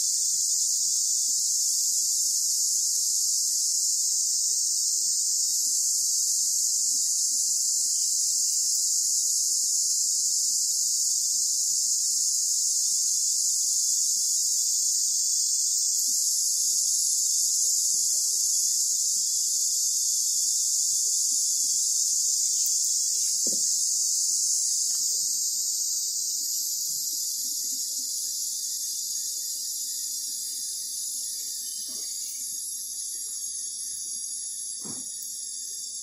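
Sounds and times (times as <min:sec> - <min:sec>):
insect chorus buzzing: 0:00.0 - 0:36.0.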